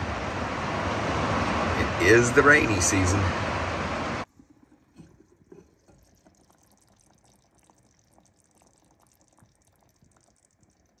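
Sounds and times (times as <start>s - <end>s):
stew bubbling in a pot: 4.2s - 11.0s.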